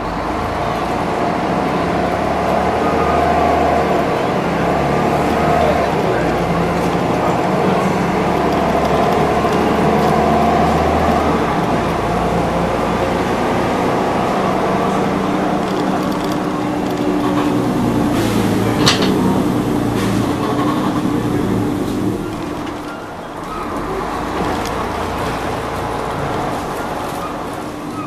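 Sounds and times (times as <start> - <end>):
bus engine running: 0.0 - 28.0
road noise: 0.0 - 28.0.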